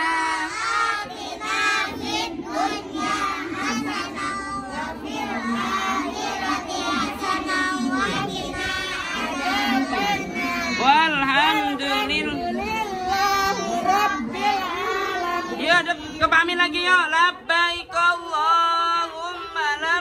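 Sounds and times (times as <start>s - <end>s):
children chanting in unison: 0.0s - 11.0s, 11.6s - 16.2s.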